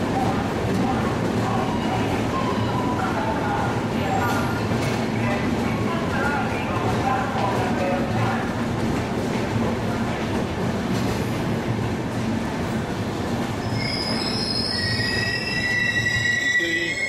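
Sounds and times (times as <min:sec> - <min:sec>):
train wheels rumbling on rails: 0:00.0 - 0:17.0
train brakes squealing: 0:13.6 - 0:17.0.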